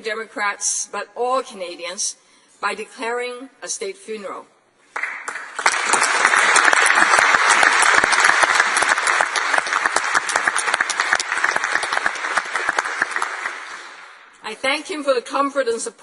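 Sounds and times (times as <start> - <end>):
audience clapping: 4.9 - 14.4.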